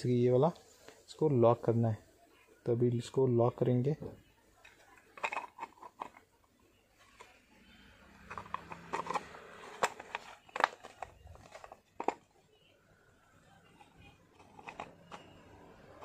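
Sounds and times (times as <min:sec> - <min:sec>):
hard plastic clicks and scraping: 0:04.6 - 0:06.4, 0:08.2 - 0:12.3, 0:13.7 - 0:16.0.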